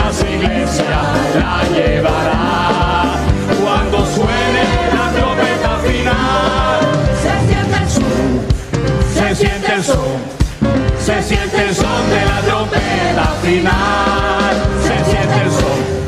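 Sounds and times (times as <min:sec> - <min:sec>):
group singing in unison: 0:00.0 - 0:16.0
instrumental backing: 0:00.0 - 0:16.0.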